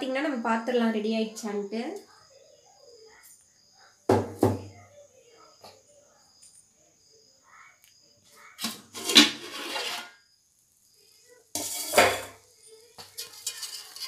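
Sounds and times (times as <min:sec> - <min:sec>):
metal pot lid clanking: 0:08.6 - 0:10.1, 0:11.5 - 0:12.4, 0:13.0 - 0:14.0.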